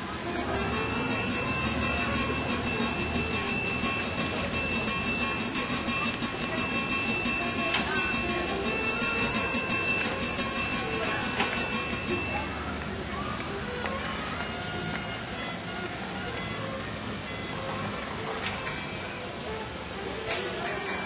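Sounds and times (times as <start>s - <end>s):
bell ringing rapidly: 0.6s - 12.7s.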